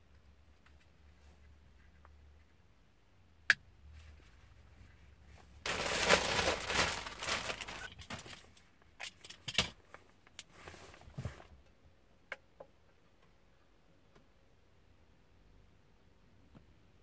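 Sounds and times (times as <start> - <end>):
plastic bag crinkling: 5.6 - 8.6.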